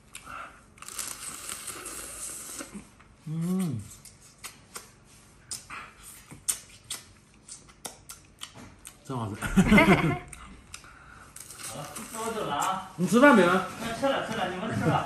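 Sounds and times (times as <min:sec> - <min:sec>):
slurping and sucking at shell: 0:00.2 - 0:08.2
person humming: 0:03.2 - 0:04.0
wet smacks and clicks: 0:04.0 - 0:05.7, 0:06.3 - 0:09.0.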